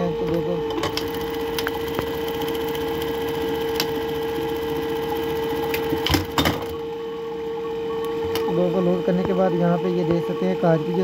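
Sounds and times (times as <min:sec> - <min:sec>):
sewing machine stitching: 0:00.8 - 0:06.6.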